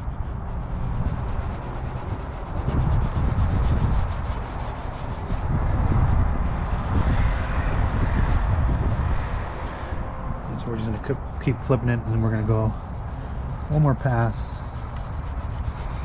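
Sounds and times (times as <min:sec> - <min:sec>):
wipe scrubbing plastic lens: 0:10.8 - 0:16.0.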